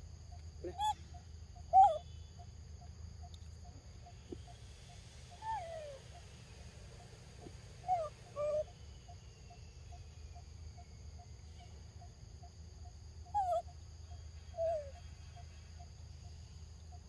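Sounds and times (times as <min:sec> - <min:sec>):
high insect drone: 0:00.0 - 0:17.0
macaque whimpering coo calls: 0:00.6 - 0:01.0, 0:01.7 - 0:02.0, 0:05.4 - 0:06.0, 0:07.8 - 0:08.7, 0:13.4 - 0:13.6, 0:14.5 - 0:15.0.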